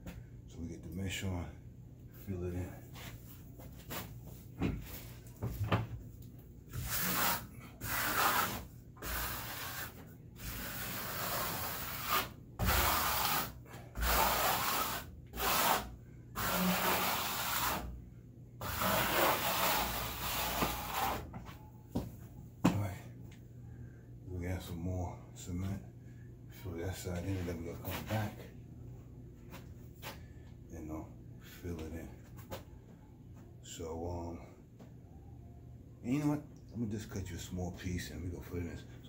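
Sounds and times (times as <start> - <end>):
trowel scraping on a wall: 6.7 - 17.9, 18.6 - 21.3.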